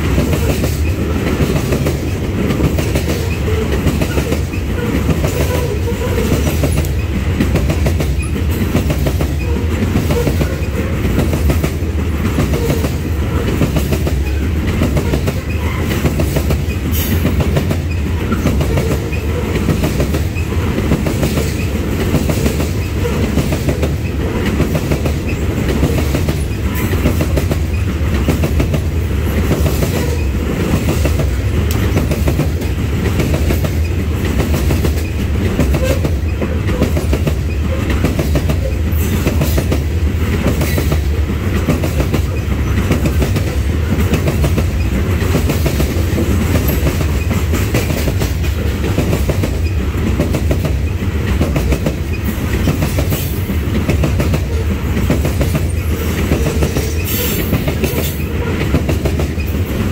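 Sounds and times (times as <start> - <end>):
freight train wheels rumbling on rails: 0.0 - 59.9.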